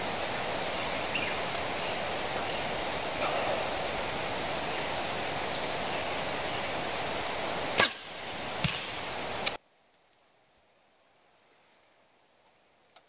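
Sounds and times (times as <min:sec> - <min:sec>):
wind rushing: 0:00.0 - 0:09.6
arrow hitting target: 0:07.8 - 0:09.0
bow string snap: 0:07.8 - 0:09.6.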